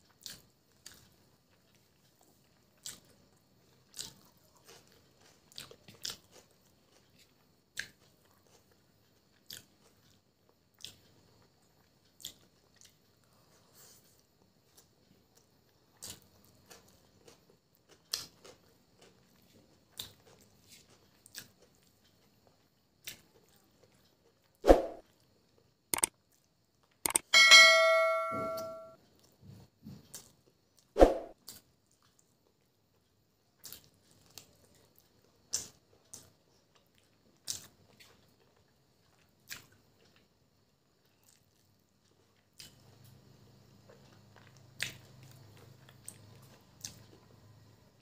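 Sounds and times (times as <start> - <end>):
chewing and lip clicks: 0.0 - 24.6, 26.0 - 27.2, 30.1 - 43.2, 43.8 - 47.7
quick clicks: 27.1 - 27.3
bell ding: 27.2 - 29.0.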